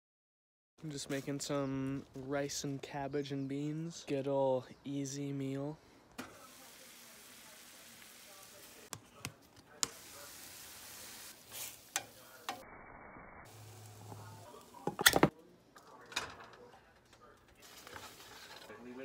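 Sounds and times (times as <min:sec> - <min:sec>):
food sizzling in a pan: 0:06.3 - 0:08.9, 0:09.8 - 0:14.9.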